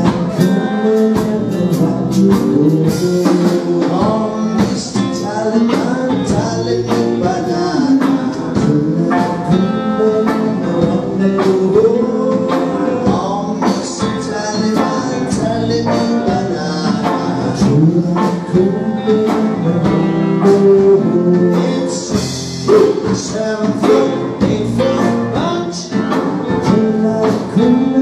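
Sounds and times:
live rock band playing: 0.0s - 28.0s
person singing: 0.0s - 28.0s
steady drum beat: 0.0s - 28.0s.

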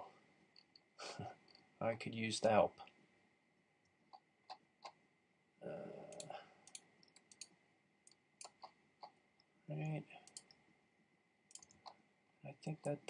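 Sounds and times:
computer mouse clicking: 4.1s - 5.0s, 6.1s - 9.2s, 10.2s - 10.6s, 11.5s - 12.0s
low vocal hum: 5.6s - 6.4s.

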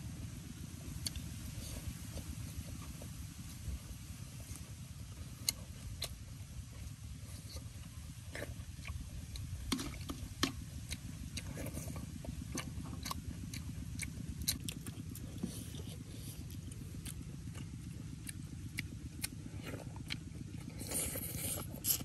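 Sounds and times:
steady low rumble: 0.0s - 22.0s
chewing smacks: 7.4s - 22.0s.

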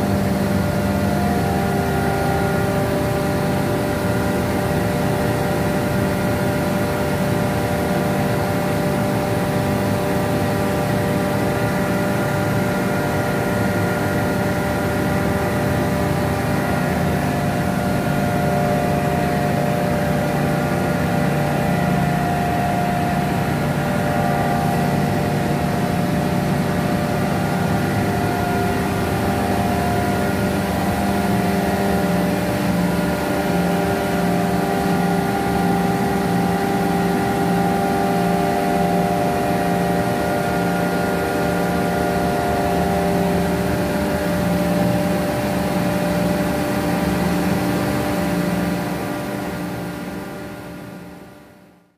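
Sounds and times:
steady whining tones: 0.0s - 50.6s
low mechanical drone: 0.0s - 51.9s.

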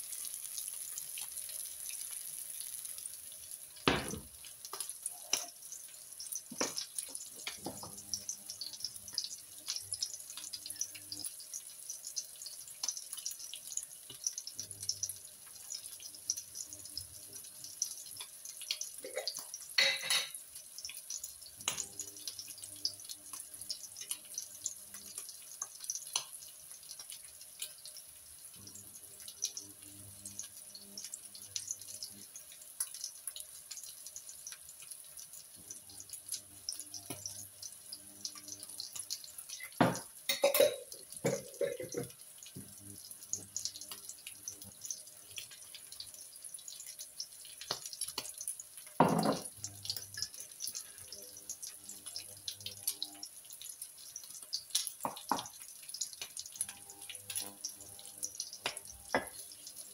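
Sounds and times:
patties sizzling in a frying pan: 0.0s - 59.9s
dishes knocking: 3.9s - 4.3s, 39.8s - 40.5s, 49.0s - 49.5s.

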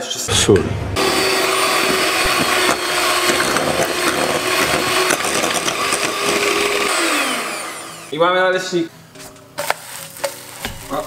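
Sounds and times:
electric hand mixer whisking: 1.0s - 8.2s.

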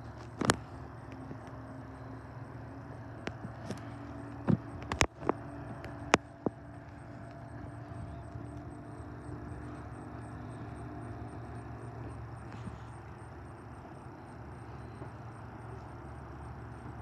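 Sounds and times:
faint steady tone: 0.0s - 17.0s
low engine hum: 0.0s - 17.0s
sharp clicks and knocks: 4.4s - 6.6s.

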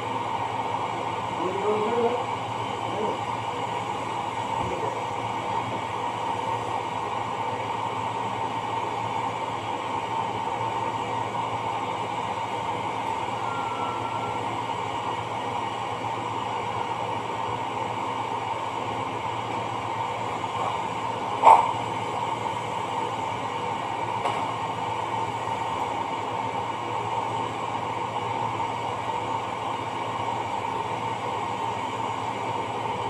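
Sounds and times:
machinery hum and hiss: 0.0s - 33.0s
faint tone: 13.4s - 14.6s.

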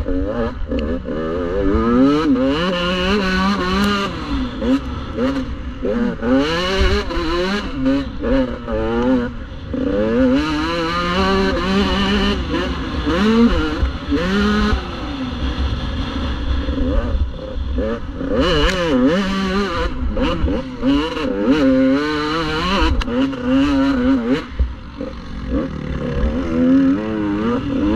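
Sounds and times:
dirt bike engine revving: 0.0s - 27.9s
wind rumble: 9.3s - 21.0s.

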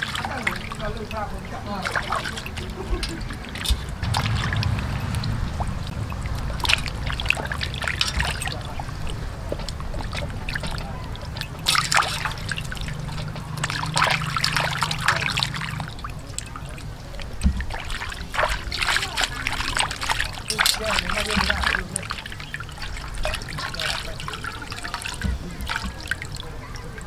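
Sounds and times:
water sloshing in a steel basin: 0.0s - 27.0s
water trickling: 0.0s - 27.0s.

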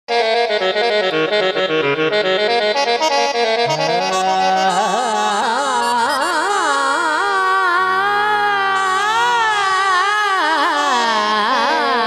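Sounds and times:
reedy instrumental melody: 0.1s - 9.8s
man singing with vibrato: 3.6s - 12.0s.

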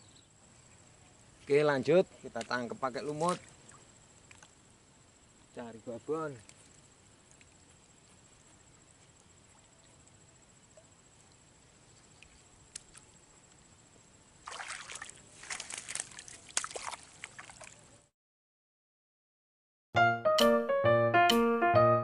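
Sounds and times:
shallow water sloshing and splashing: 14.4s - 17.9s.

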